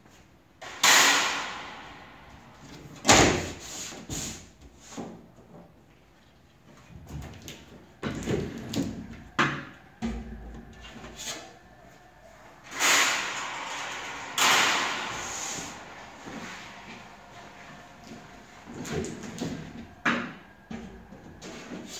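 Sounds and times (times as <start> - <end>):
loud scraping slides: 0.6 - 4.4, 12.4 - 21.9.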